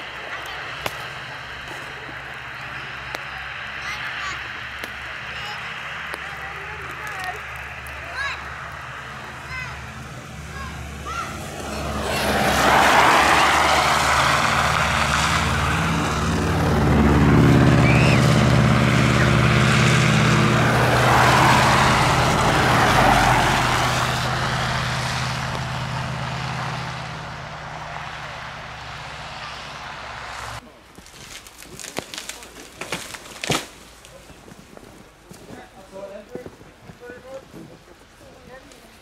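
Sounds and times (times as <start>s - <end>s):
vehicle engines passing: 0.0s - 30.9s.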